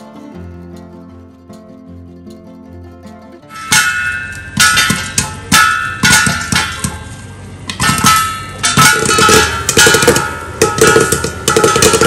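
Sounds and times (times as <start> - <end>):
metal utensil striking metal pan: 3.5 - 12.0.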